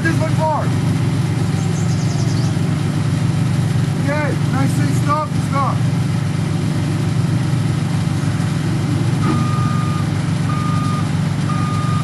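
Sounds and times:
truck engine running: 0.0s - 12.0s
reversing alarm beeps: 9.2s - 12.0s.

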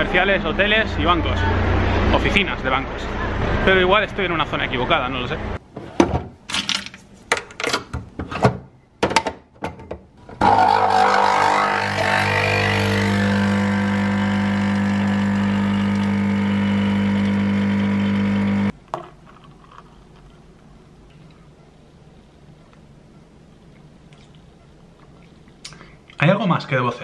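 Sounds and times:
espresso machine pump humming: 10.4s - 18.7s.

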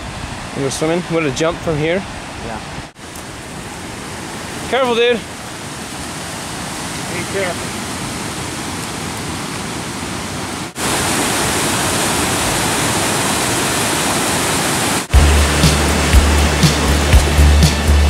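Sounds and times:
creek rushing over boulders: 0.0s - 18.0s
music with heavy bass beat: 15.1s - 18.0s.

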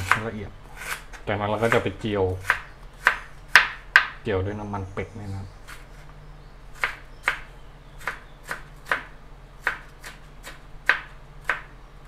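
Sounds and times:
knife chopping on cutting board: 0.0s - 4.2s, 6.8s - 11.7s.

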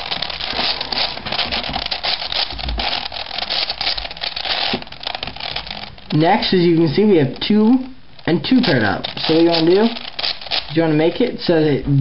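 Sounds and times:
puzzle cube twisting clicks: 0.0s - 7.6s, 8.2s - 10.8s.

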